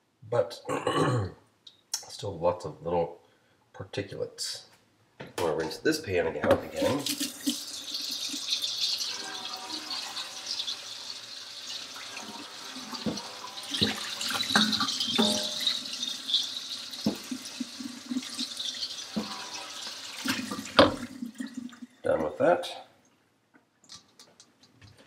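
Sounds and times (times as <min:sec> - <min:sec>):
kitchen tap running into sink: 0:06.5 - 0:21.9
pan knocking in sink: 0:12.9 - 0:16.0, 0:17.0 - 0:17.6, 0:19.1 - 0:21.1.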